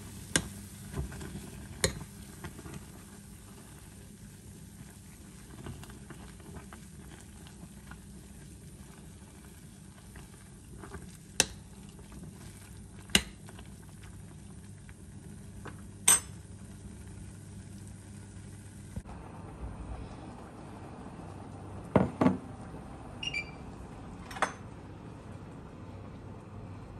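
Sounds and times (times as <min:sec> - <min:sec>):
spoon clinking on a pan: 0:16.1 - 0:16.4.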